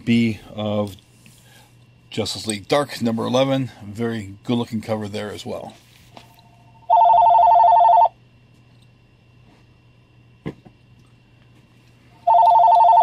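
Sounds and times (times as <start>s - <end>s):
telephone warbling two-tone ring: 6.9s - 8.1s, 12.3s - 13.0s.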